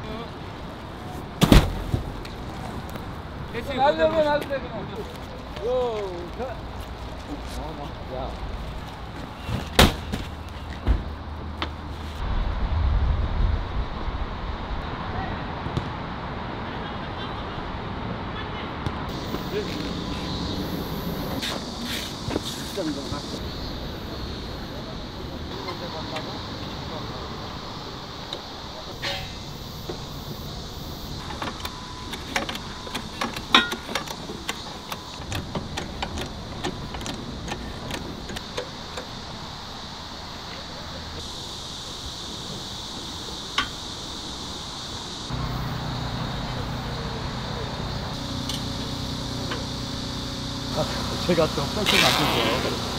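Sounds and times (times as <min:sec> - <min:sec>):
ringing metal clank: 0:33.5 - 0:34.0.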